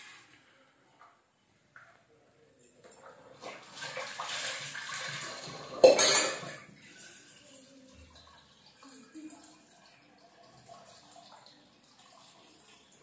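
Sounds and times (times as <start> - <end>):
steel dishes clanking: 5.7 - 6.6.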